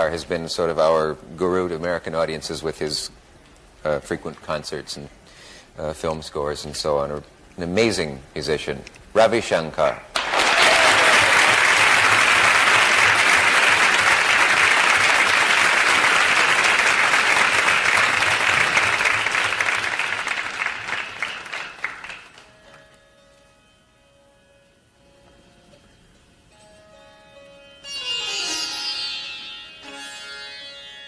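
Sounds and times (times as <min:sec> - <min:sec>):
studio audience applauding: 0:10.1 - 0:22.5.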